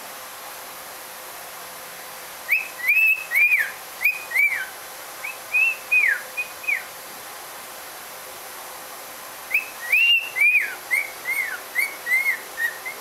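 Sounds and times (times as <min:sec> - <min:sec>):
cockatiel whistling: 0:02.5 - 0:06.9, 0:09.5 - 0:13.0.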